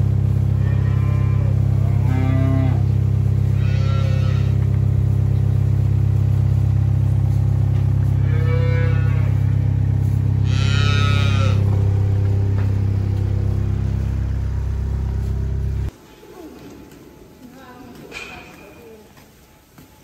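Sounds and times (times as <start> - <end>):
steady low hum: 0.0 - 16.0
cows mooing: 0.4 - 4.8, 7.9 - 15.9.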